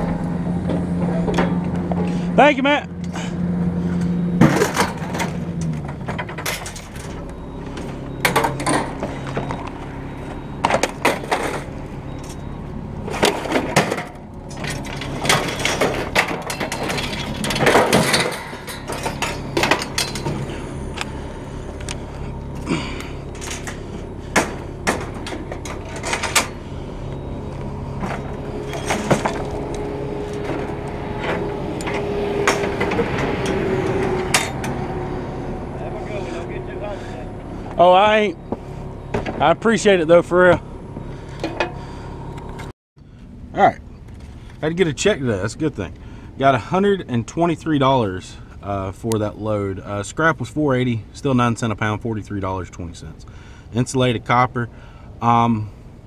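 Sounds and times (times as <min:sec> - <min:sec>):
engine running: 0:00.0 - 0:56.0
scrap metal clanging: 0:13.0 - 0:37.7.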